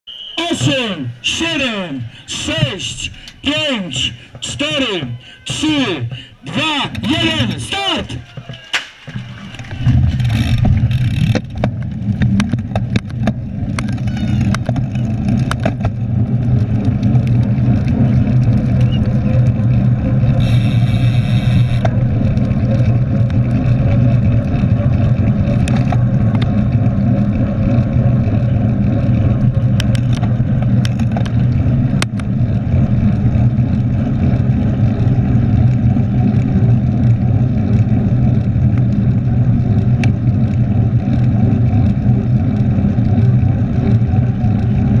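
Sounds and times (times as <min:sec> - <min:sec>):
wind and tyre rumble: 0:00.7 - 0:45.0
bike clicks and knocks: 0:08.1 - 0:19.8, 0:20.4 - 0:43.4.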